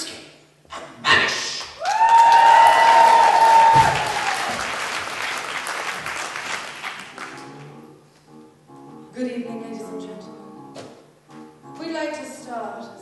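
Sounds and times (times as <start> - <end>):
audience applauding: 1.8 - 7.5.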